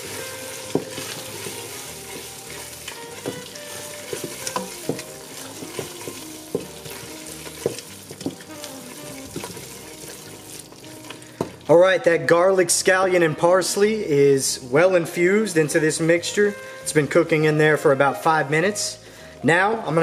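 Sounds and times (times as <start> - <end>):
spoon scraping and knocking pot: 0.0 - 10.3
vegetables sizzling in a pot: 0.0 - 11.8.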